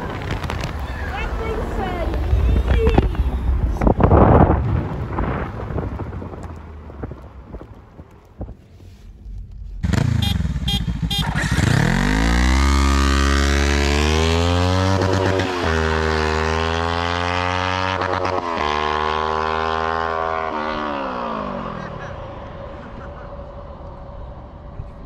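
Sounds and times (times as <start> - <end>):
engine revving: 9.8 - 24.6.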